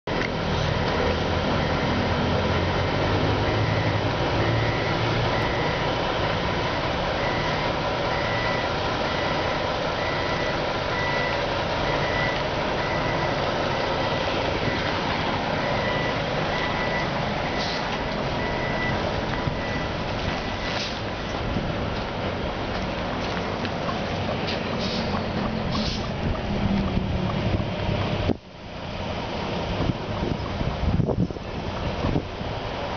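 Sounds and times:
bus engine running low: 0:00.1 - 0:32.9
reversing alarm beeps: 0:01.5 - 0:02.1, 0:03.4 - 0:05.9, 0:06.7 - 0:14.9, 0:15.6 - 0:20.8.

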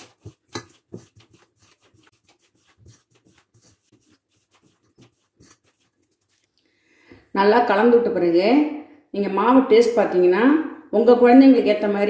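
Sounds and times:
hand mixing flour in metal bowl: 0:00.0 - 0:06.6.

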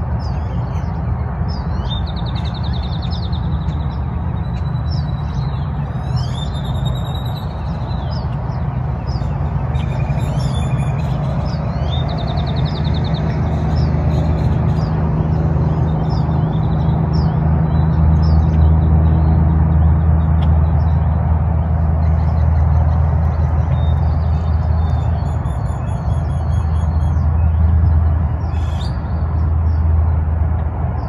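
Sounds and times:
steady low rumble: 0:00.0 - 0:31.0
bird trill: 0:04.6 - 0:08.3, 0:09.0 - 0:15.0, 0:23.7 - 0:27.6, 0:28.4 - 0:29.2.

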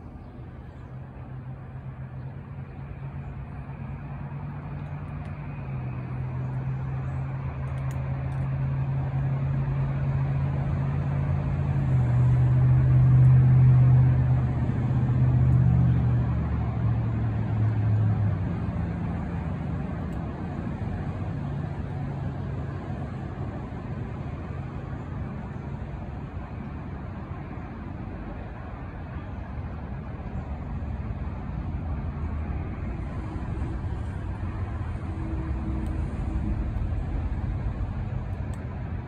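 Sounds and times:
vehicle engine humming: 0:00.0 - 0:39.0.

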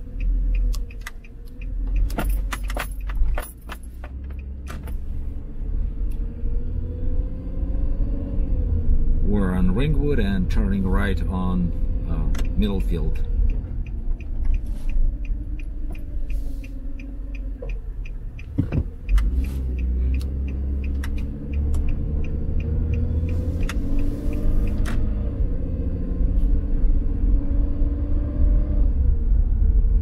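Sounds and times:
turn indicator ticking: 0:00.0 - 0:05.2, 0:10.2 - 0:25.9
car engine and road rumble: 0:00.0 - 0:30.0
car bump: 0:18.5 - 0:19.0.

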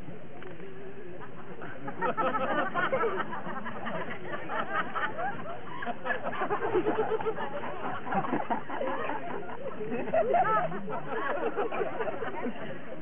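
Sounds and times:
audience chatter: 0:00.0 - 0:13.0.

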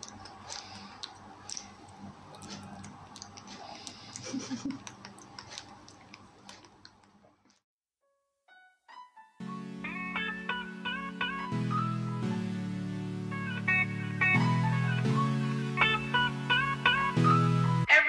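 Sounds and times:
baby monkey chewing: 0:00.0 - 0:07.6
faint room noise: 0:00.0 - 0:07.6.

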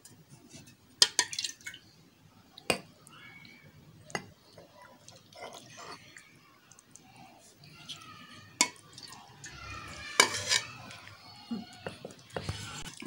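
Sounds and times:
thick milk pouring and dripping: 0:00.4 - 0:01.9, 0:03.0 - 0:13.0.

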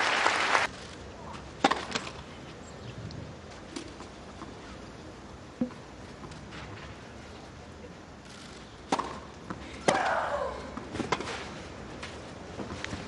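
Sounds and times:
racket striking tennis ball: 0:01.6 - 0:02.1, 0:08.9 - 0:10.2.

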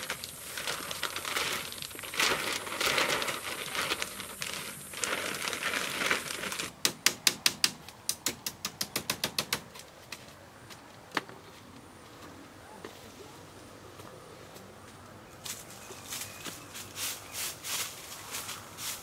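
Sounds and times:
plastic sheet crinkling: 0:00.0 - 0:06.7.

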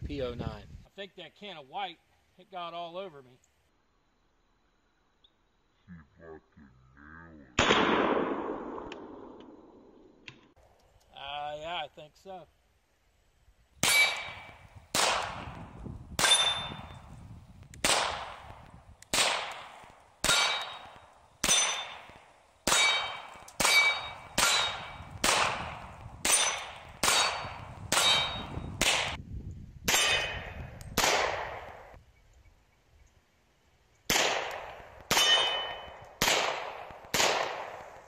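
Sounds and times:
pistol shots: 0:07.6 - 0:09.6, 0:13.8 - 0:15.6, 0:16.2 - 0:16.9, 0:17.8 - 0:29.2, 0:29.9 - 0:31.9, 0:34.1 - 0:38.0
steel targets ringing: 0:13.8 - 0:14.5, 0:16.2 - 0:16.9, 0:20.3 - 0:22.1, 0:22.7 - 0:25.0, 0:26.3 - 0:28.5, 0:35.1 - 0:36.0.

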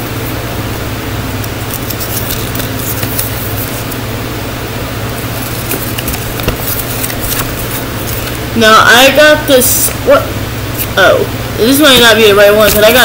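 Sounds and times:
fan hiss: 0:00.0 - 0:13.0
paper leaflet crinkling: 0:01.5 - 0:04.0, 0:05.0 - 0:08.5, 0:12.4 - 0:13.0.

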